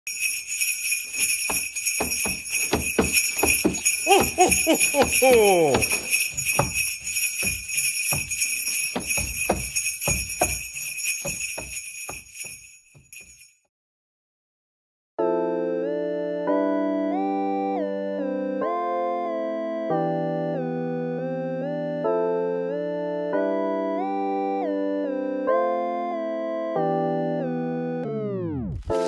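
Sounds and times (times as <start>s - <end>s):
sleigh bells jingling: 0.1s - 13.6s
irregular knocks: 1.1s - 13.4s
person calling out: 4.0s - 6.2s.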